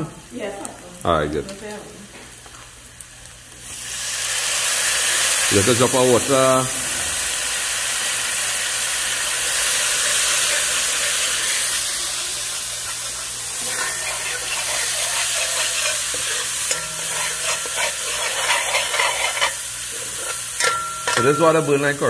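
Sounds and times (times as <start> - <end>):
food sizzling in hot oil: 2.3 - 22.0
spoon scraping a pan: 9.4 - 21.8.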